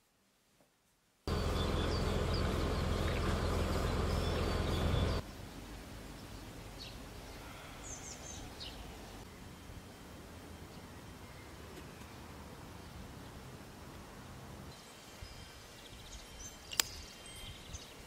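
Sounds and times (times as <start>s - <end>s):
loud steady rumbling: 1.3s - 5.2s
small birds chirping: 1.3s - 5.3s, 6.2s - 9.3s, 14.7s - 18.0s.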